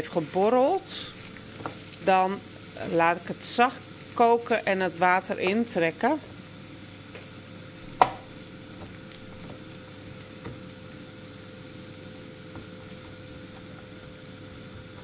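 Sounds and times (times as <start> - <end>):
pot sizzling on stove: 0.0 - 15.0.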